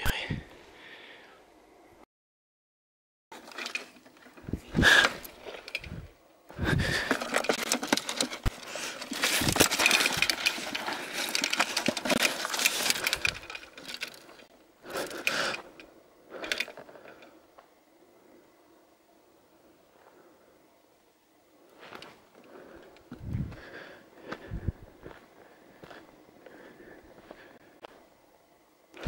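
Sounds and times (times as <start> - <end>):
rustling through undergrowth: 3.4 - 17.5.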